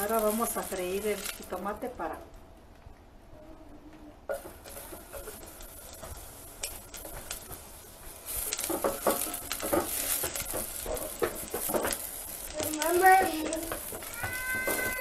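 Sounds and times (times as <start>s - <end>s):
food sizzling in hot oil: 0.0s - 2.1s, 4.3s - 15.0s
spatula scraping a pot: 4.6s - 15.0s.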